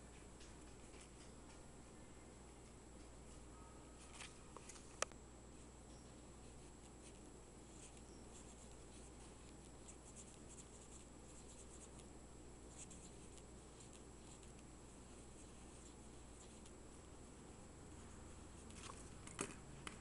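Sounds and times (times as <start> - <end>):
steady low hum: 0.0 - 20.0
pencil scratching on paper: 12.7 - 16.7.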